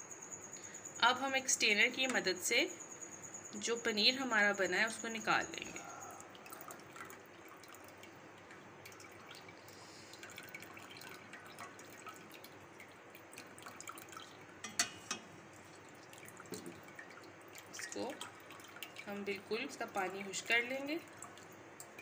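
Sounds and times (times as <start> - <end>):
whey dripping into steel bowl: 5.7 - 22.0.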